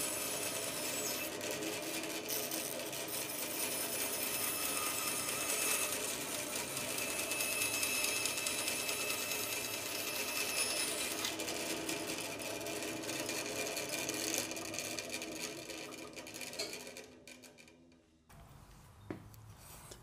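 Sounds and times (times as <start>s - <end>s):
bandsaw cutting wood: 0.0s - 16.9s.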